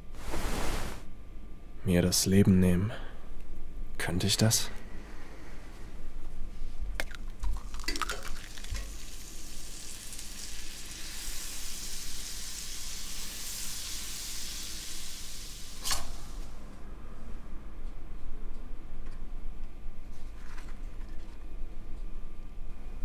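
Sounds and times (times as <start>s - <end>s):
egg sizzling in a pan: 7.5s - 16.5s.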